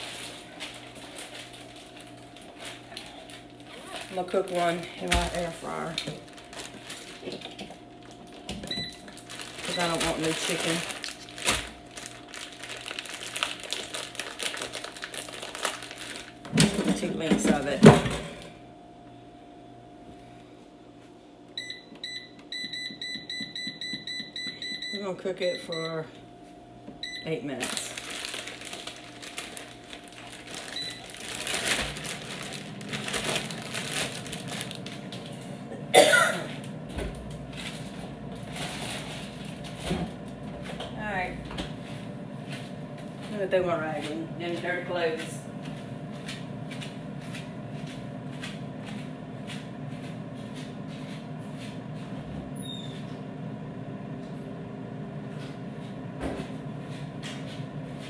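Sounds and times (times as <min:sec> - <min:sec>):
packaging crinkling: 0:00.0 - 0:16.6, 0:27.6 - 0:35.5
air fryer fan hum: 0:00.0 - 0:58.0.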